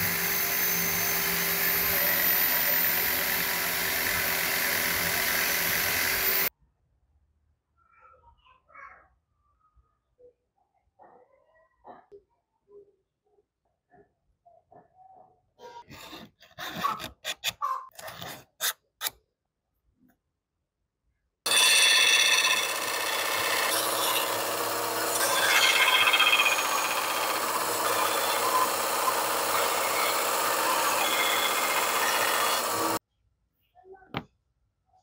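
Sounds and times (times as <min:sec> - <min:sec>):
scroll saw cutting plastic: 0:00.0 - 0:06.5, 0:15.9 - 0:19.2, 0:21.5 - 0:33.0.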